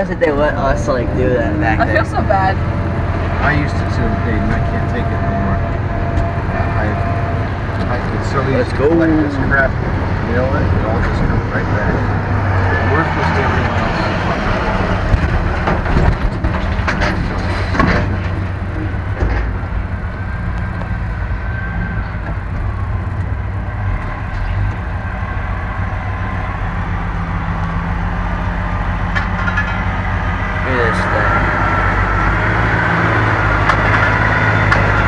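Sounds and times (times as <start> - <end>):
truck engine running: 0.0 - 35.0
sharp clanks and rattles: 12.9 - 25.4, 28.6 - 30.4.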